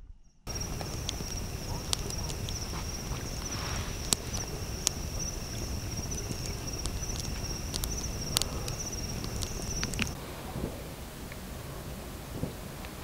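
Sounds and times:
low background rumble: 0.0 - 13.0
insects trilling: 0.5 - 10.2
sharp clicks: 0.5 - 10.2.

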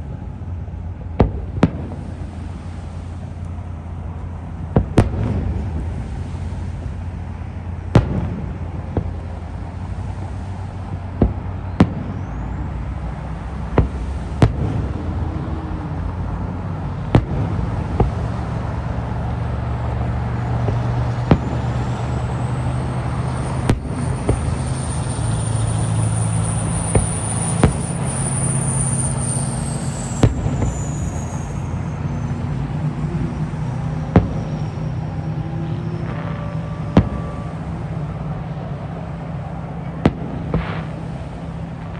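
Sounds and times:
fireworks booming: 0.0 - 41.9
low rumble: 0.0 - 41.9
high whistle: 11.7 - 13.1, 20.7 - 38.4.

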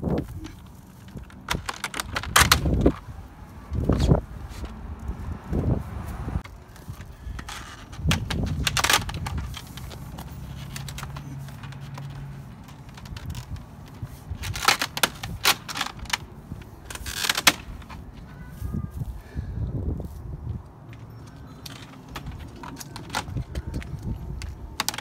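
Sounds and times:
plastic panels clattering: 1.1 - 3.0.

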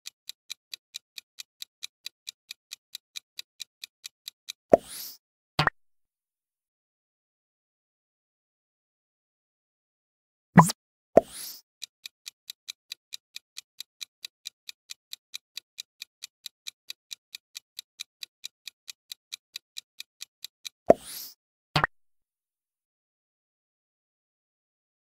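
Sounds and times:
fast clock-like ticking: 0.0 - 4.6, 11.8 - 21.4
short double click: 10.6 - 11.6.

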